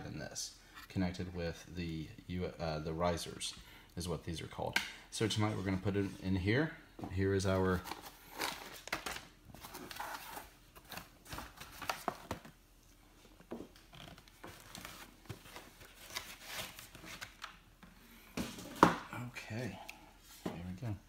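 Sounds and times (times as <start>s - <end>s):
packaging rustling and crinkling: 7.7s - 12.6s, 14.1s - 17.4s.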